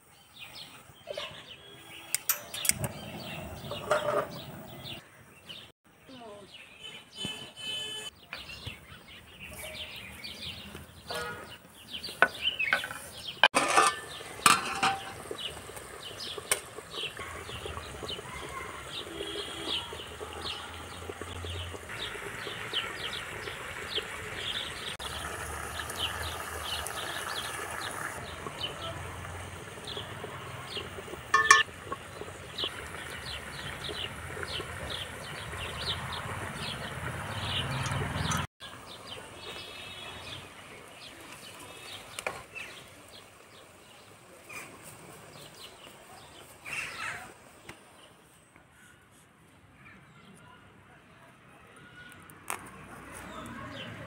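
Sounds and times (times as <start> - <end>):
birds chirping: 0.1 - 49.0
metal clinking against pots: 2.1 - 3.0, 12.7 - 15.4, 31.3 - 32.1.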